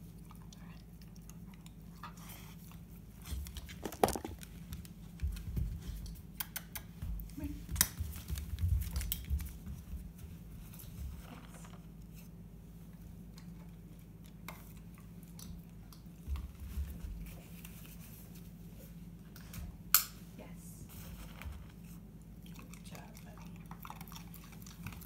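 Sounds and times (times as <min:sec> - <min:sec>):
dog's claws on hardwood floor: 0:03.2 - 0:11.8.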